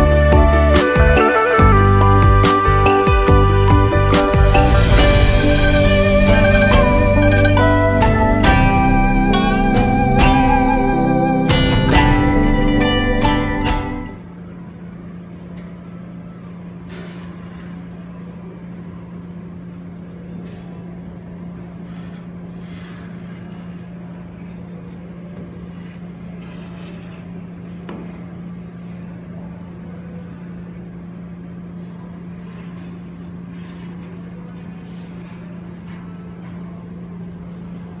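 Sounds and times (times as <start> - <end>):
machine hum: 0.0 - 14.6.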